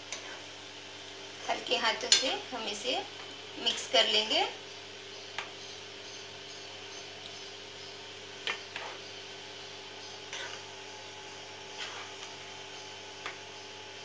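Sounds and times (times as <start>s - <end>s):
steady background hum: 0.0s - 14.0s
spoon scraping and knocking pan: 8.5s - 9.1s, 11.7s - 12.4s.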